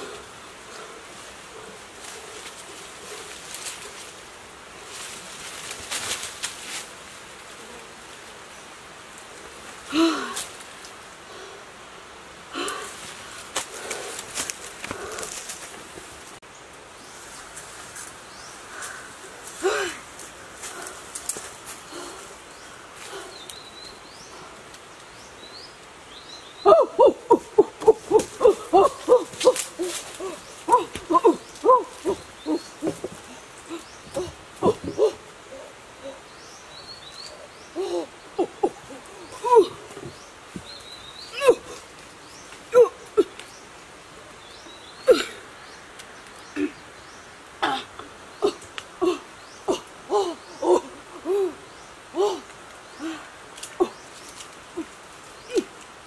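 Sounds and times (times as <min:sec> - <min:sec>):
leaves and branches rustling: 0:00.0 - 0:56.0
steady forest hiss: 0:00.0 - 0:56.0
person grunting with effort: 0:09.9 - 0:10.4, 0:19.6 - 0:20.0, 0:26.7 - 0:33.1, 0:33.7 - 0:36.2, 0:37.8 - 0:39.9, 0:47.6 - 0:51.6, 0:52.2 - 0:53.2
hooting animal calls: 0:26.6 - 0:36.2.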